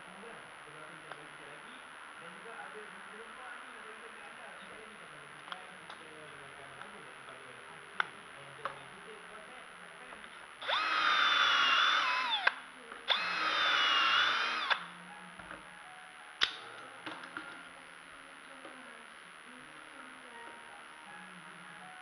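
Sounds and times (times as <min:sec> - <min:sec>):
cordless drill boring into wood: 0:10.6 - 0:14.8.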